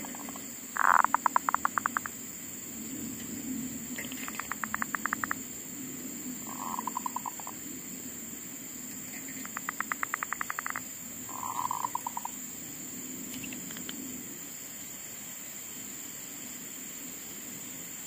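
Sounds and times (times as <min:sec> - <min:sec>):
steady high hiss: 0:00.0 - 0:18.0
dove calling in staccato notes: 0:09.4 - 0:12.3.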